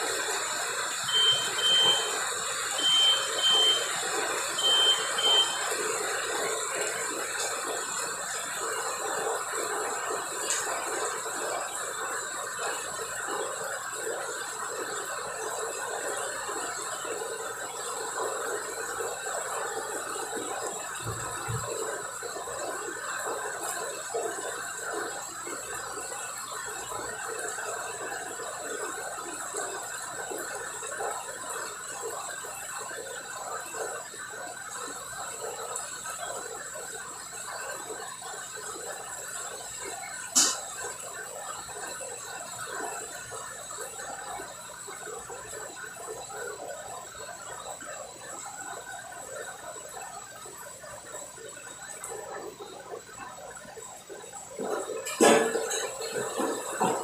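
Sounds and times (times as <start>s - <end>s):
faint high whine: 0.0s - 9.0s
deep fryer oil bubbling: 0.0s - 57.0s.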